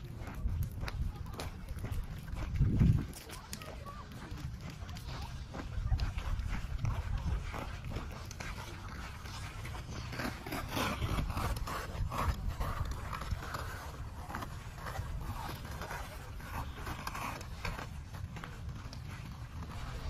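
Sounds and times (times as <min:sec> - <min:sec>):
ice skate blades scraping: 0:00.0 - 0:20.0.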